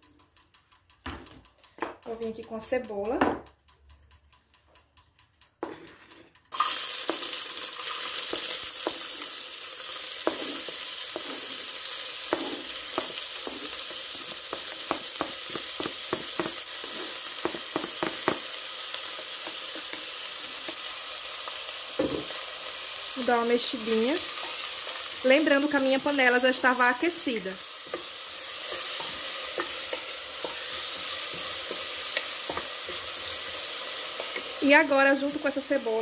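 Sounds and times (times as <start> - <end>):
wooden spoon knocking and scraping: 5.6 - 6.0, 12.3 - 18.4, 28.7 - 33.4
onion sizzling in hot oil: 6.5 - 36.0.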